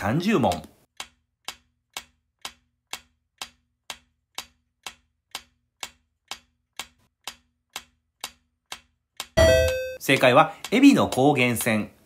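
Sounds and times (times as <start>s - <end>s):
countdown timer ticking: 9.2s - 11.8s.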